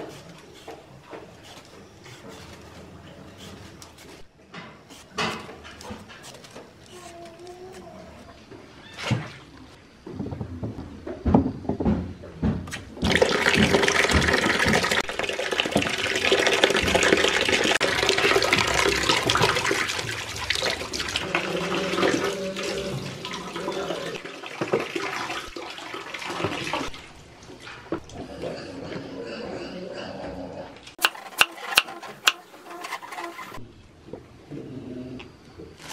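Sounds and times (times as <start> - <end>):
water splashing in plastic basin: 13.0 - 27.2.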